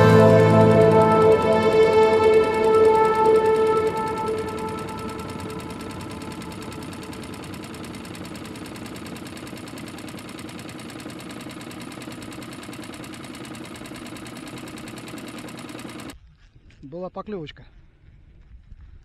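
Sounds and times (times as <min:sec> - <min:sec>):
outboard motor running: 0:00.0 - 0:16.2.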